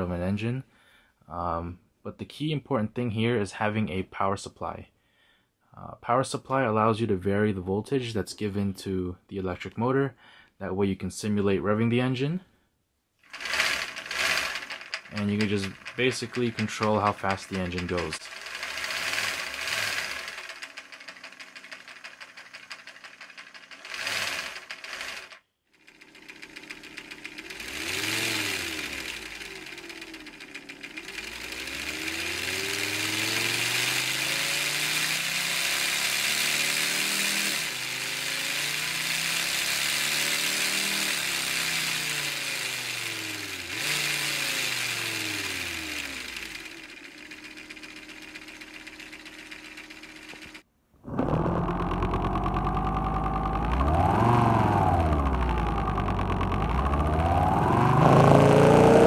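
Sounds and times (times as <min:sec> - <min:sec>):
model engine pistons clattering: 0:13.3 - 0:34.2, 0:43.7 - 0:50.6.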